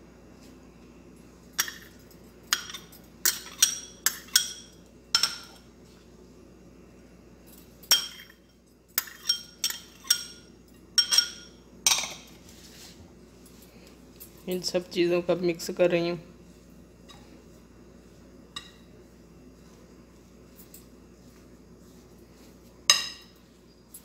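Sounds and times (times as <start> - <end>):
ceramic bowl clinking on glass: 9.0 - 12.2, 22.9 - 23.4.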